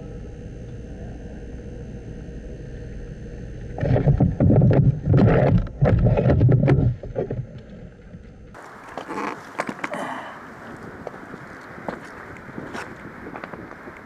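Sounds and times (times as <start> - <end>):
rustling and buffeting on microphone: 3.8 - 14.0.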